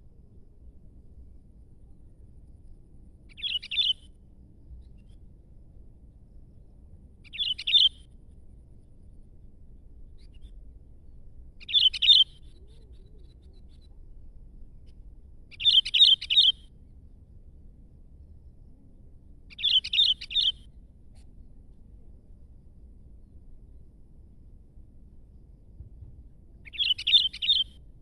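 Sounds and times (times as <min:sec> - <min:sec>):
bulbul singing: 0:03.3 - 0:04.0, 0:07.2 - 0:08.0, 0:11.6 - 0:12.9, 0:15.5 - 0:16.6, 0:19.5 - 0:20.6, 0:26.6 - 0:27.8.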